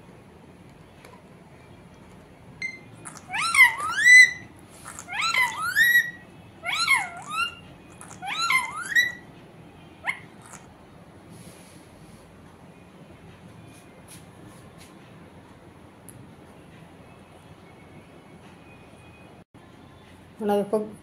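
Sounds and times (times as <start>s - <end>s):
parakeet squawking: 2.9s - 9.3s, 10.0s - 10.7s.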